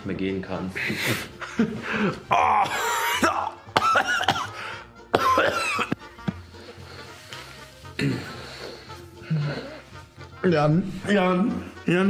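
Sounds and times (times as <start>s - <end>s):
man coughing: 2.0s - 6.1s, 8.0s - 8.5s
man straining vocal noises: 2.2s - 4.4s.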